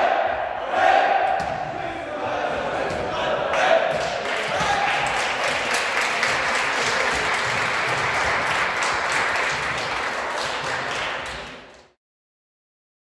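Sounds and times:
crowd clapping: 3.5 - 12.0.

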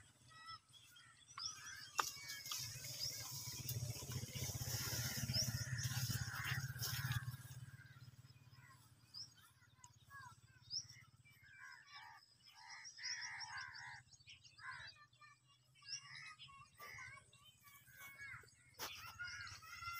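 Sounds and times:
birds chirping: 0.0 - 19.9.

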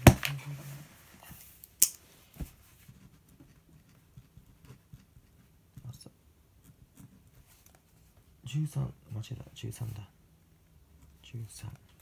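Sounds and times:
book thumping on desk: 0.0 - 0.4.

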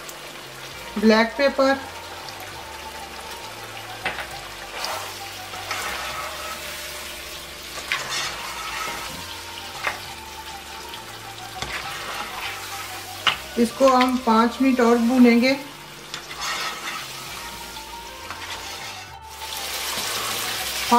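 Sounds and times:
meat sizzling in a pan: 0.0 - 20.9
plastic spoon scraping a pan: 4.7 - 7.0, 7.7 - 10.0, 11.6 - 13.4, 16.1 - 17.2, 18.3 - 19.2.

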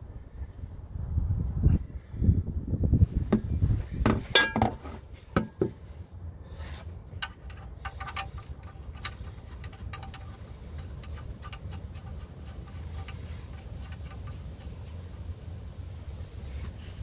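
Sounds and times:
oil drain pan rumbling: 7.2 - 17.0.

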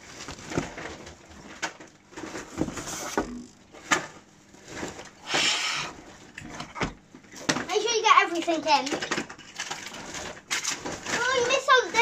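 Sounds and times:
rustling: 8.7 - 12.0.

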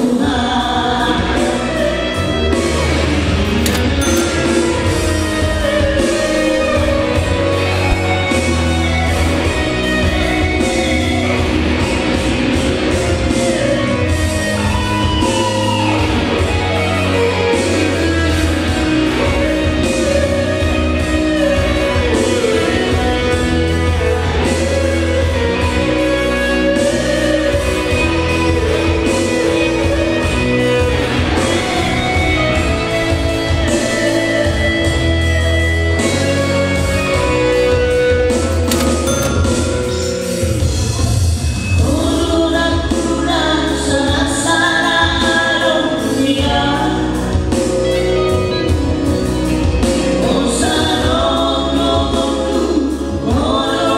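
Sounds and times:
amplified backing music: 0.0 - 53.9
men singing in harmony: 50.1 - 53.9.

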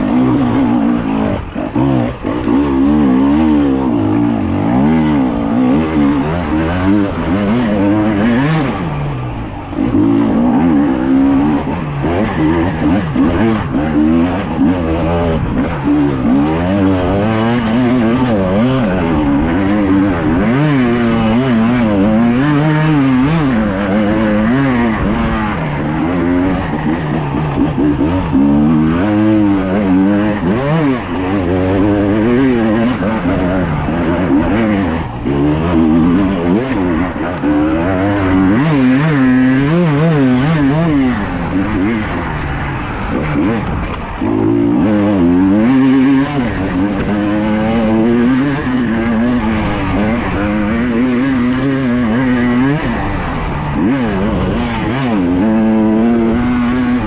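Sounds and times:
two-stroke motorcycle engine revving: 0.0 - 57.0.

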